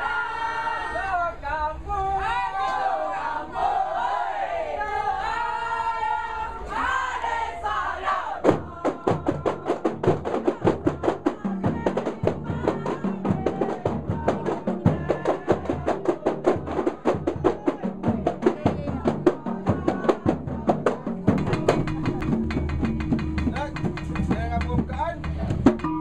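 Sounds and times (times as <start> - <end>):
fast drum rhythm: 8.4 - 26.0.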